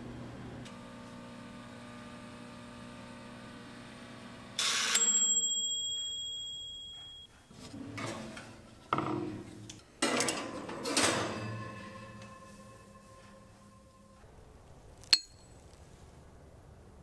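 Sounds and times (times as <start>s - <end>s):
toaster oven humming: 0.0s - 6.6s
timer bell ding: 5.0s - 7.3s.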